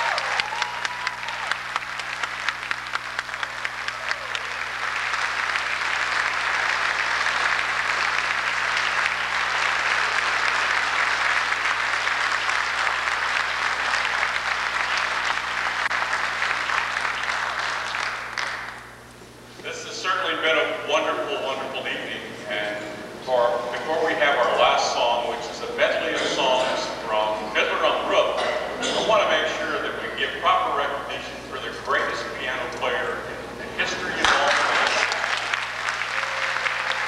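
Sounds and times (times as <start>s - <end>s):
audience applauding: 0.0s - 18.9s, 34.0s - 37.0s
steady low hum: 0.0s - 37.0s.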